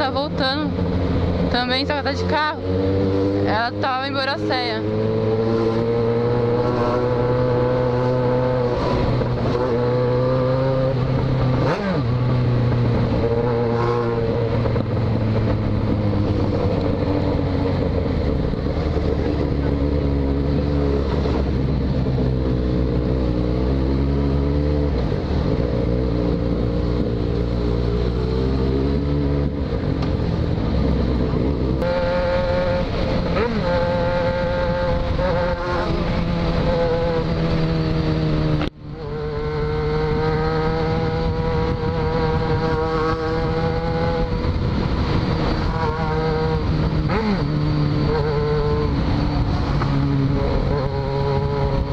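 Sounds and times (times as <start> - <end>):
motorcycle engine accelerating: 0.0 - 51.9.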